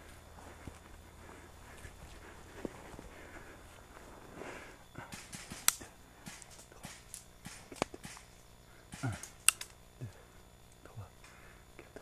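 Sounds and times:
footsteps on dry leaves and twigs: 0.0s - 4.5s
sharp cracks: 5.0s - 9.8s.

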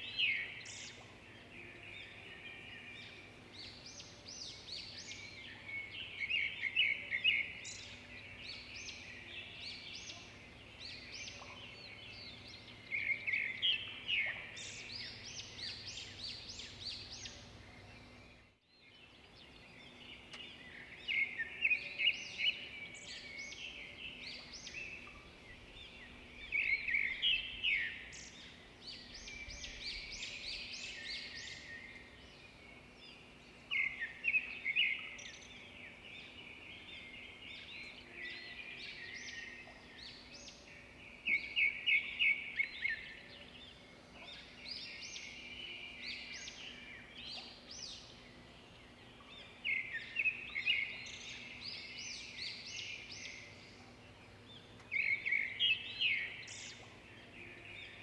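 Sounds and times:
birds chirping: 0.0s - 58.0s.

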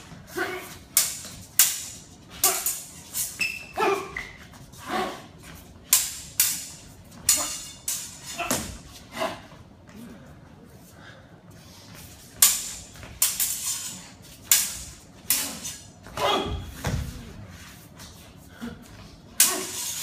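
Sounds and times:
swords clashing: 0.4s - 4.2s, 5.9s - 9.4s, 12.3s - 17.0s, 19.4s - 20.0s
sword blade ringing: 5.9s - 8.2s.

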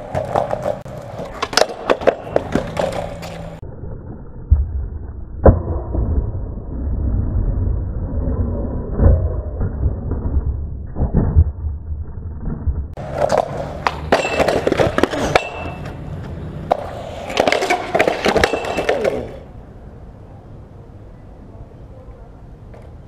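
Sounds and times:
skateboard clattering and scraping: 0.0s - 3.6s, 13.0s - 19.6s
skateboard wheels rumbling on concrete: 0.0s - 21.0s.

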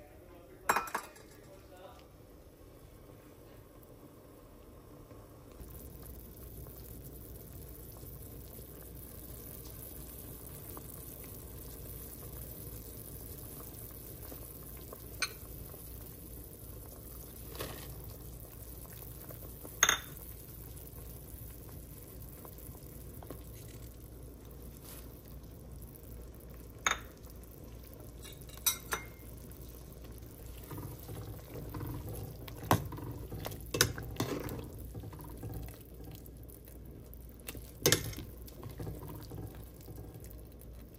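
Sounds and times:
soup simmering in a pot: 0.2s - 40.9s
ladle stirring soup: 26.3s - 40.9s
metal utensils clinking on pot: 28.2s - 29.2s.

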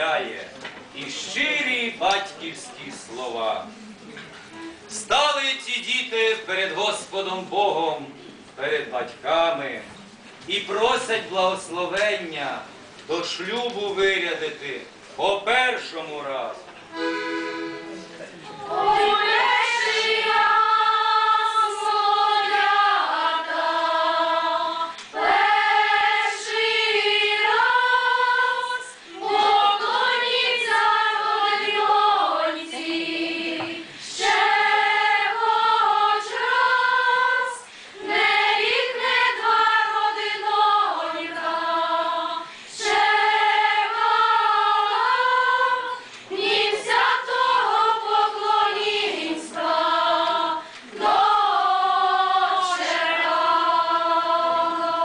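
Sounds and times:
female choir singing unaccompanied: 18.5s - 55.0s.

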